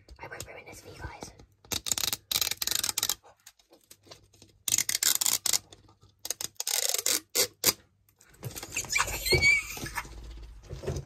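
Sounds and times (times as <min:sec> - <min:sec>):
plastic strip peeling crackle: 0:01.7 - 0:07.8.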